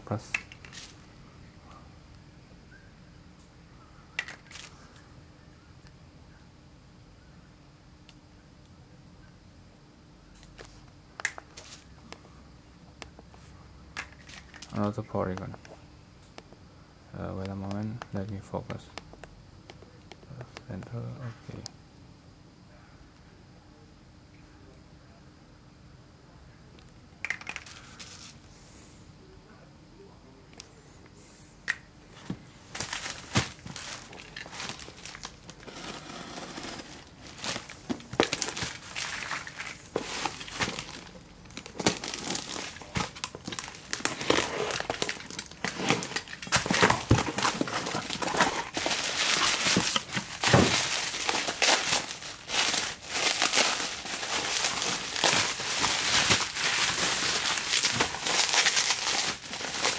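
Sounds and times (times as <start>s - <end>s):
bubble wrap crinkling: 32.7s - 59.9s.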